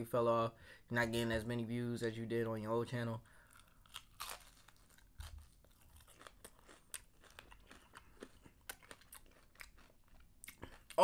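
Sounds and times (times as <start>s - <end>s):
crunchy chewing: 3.4s - 11.0s.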